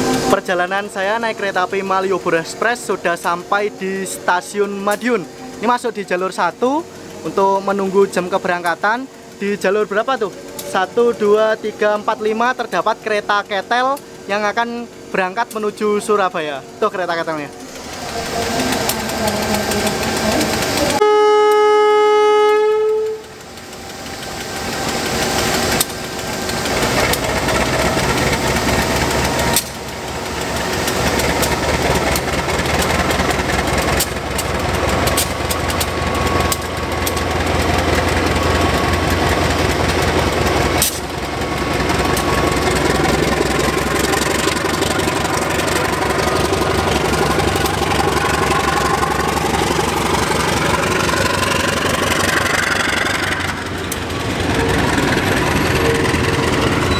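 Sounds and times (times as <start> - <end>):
diesel engine running loudly: 0.0 - 56.9
locomotive horn blast: 18.2 - 23.4.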